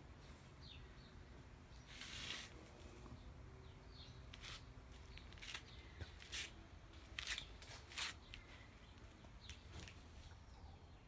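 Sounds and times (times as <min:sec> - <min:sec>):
crackling rustles: 0:01.8 - 0:03.0, 0:04.3 - 0:08.6.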